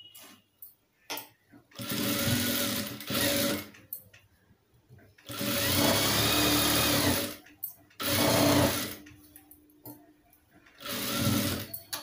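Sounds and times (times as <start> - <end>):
sewing machine stitching: 1.8 - 3.7, 5.2 - 7.4, 8.0 - 9.0, 10.8 - 11.8.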